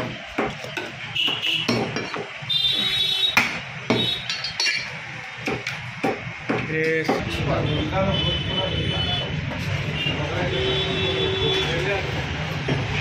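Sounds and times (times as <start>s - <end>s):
knife chopping ribs on wooden block: 0.0s - 4.7s, 5.4s - 7.3s.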